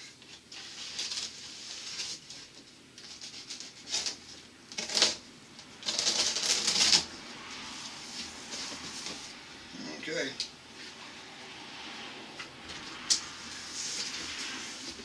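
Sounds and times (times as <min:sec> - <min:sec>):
packing tape ripping off cardboard: 0:03.0 - 0:05.2, 0:05.8 - 0:07.1.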